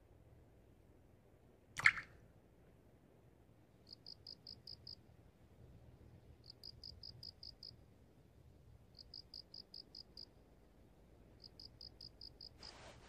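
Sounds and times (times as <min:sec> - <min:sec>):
faint cricket chirping: 0:03.8 - 0:05.2, 0:06.2 - 0:13.0.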